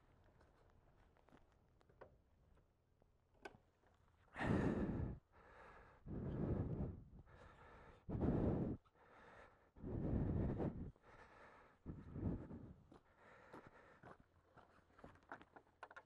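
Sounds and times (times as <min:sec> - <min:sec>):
person breathing heavily: 0:04.3 - 0:14.3.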